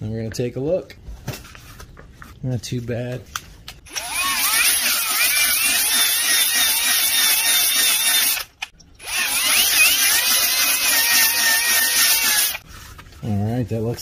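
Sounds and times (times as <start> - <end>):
power drill whirring scrub: 3.9 - 12.6.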